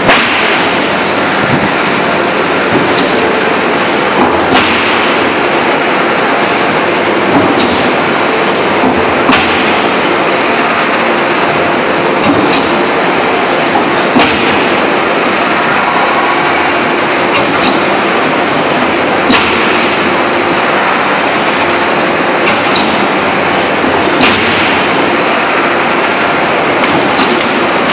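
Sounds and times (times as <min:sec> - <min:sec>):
forging press machine noise: 0:00.0 - 0:27.9
sharp metallic knocks: 0:12.2 - 0:12.8, 0:22.4 - 0:23.0, 0:24.1 - 0:25.0, 0:26.8 - 0:27.9.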